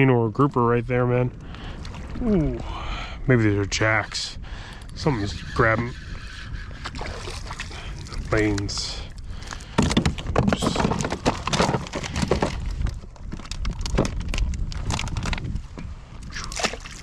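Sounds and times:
rapid irregular knocks and clicks: 0:09.4 - 0:15.4.

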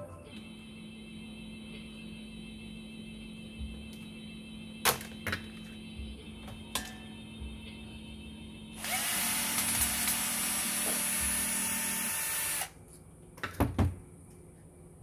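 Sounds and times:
cordless drill running: 0:08.8 - 0:12.7.

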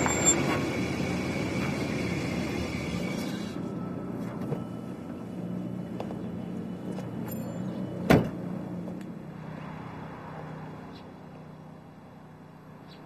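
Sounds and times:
truck door slamming: 0:08.1 - 0:08.4.

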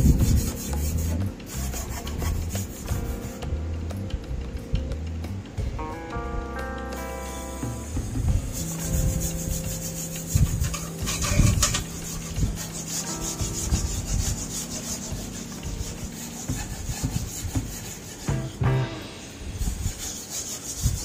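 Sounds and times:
wire brush scratching sheet steel: 0:00.0 - 0:03.4, 0:08.5 - 0:21.0.

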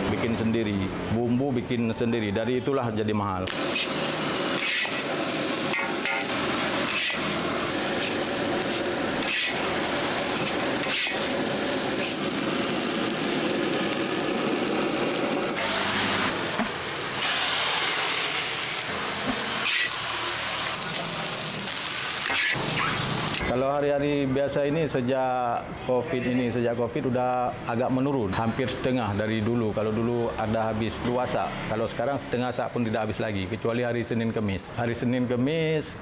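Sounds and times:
wok roaring and sizzling: 0:03.5 - 0:23.7
metal spatula scraping wok: 0:04.6 - 0:05.0, 0:05.7 - 0:09.7, 0:10.3 - 0:11.3.

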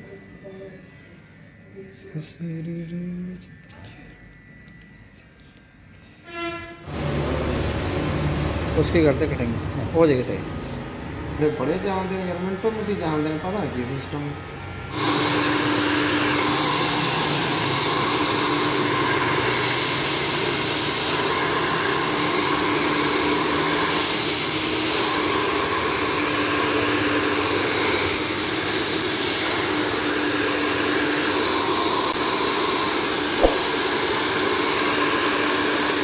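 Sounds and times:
hair dryer blowing: 0:06.9 - 0:36.0
brief click: 0:33.4 - 0:33.7.

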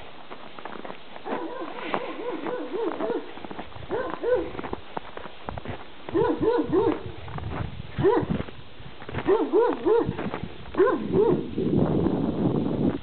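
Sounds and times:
dog barking: 0:01.2 - 0:04.6, 0:06.1 - 0:07.2, 0:08.0 - 0:08.4, 0:09.2 - 0:10.2, 0:10.8 - 0:11.5.

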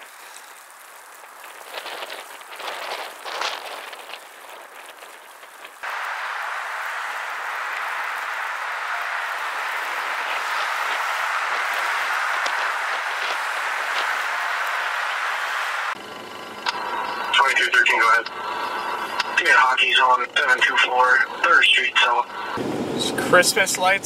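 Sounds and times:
steady outdoor hiss: 0:00.0 - 0:24.0
low rumble: 0:05.8 - 0:21.5.

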